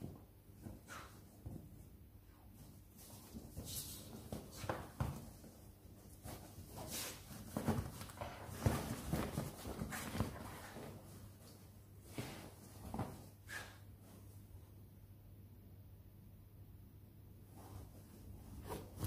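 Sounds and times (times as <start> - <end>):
puppy scrabbling in fabric bed: 3.0 - 13.7.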